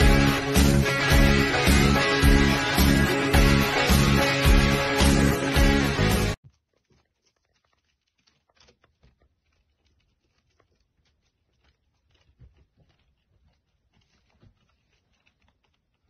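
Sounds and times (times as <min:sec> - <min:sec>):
hamster claws scratching wall: 0:06.4 - 0:16.0.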